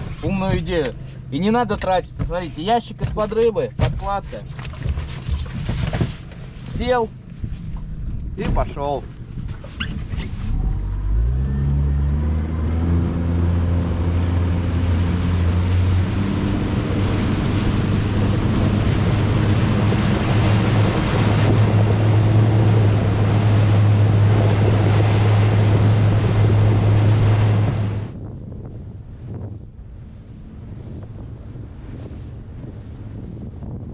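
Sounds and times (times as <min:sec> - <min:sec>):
wind on microphone: 0:04.7 - 0:33.9
water rushing past hull: 0:10.0 - 0:33.9
motorboat engine speeding up: 0:10.1 - 0:33.9.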